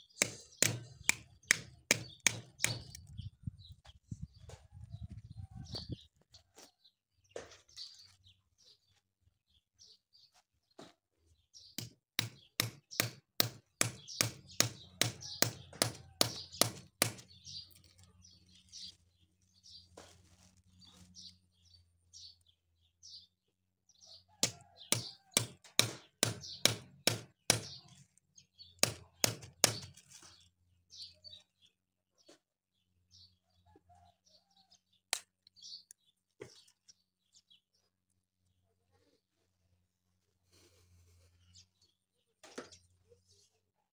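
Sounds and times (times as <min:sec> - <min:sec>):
birds chirping: 0:00.0 - 0:20.0, 0:20.7 - 0:34.7.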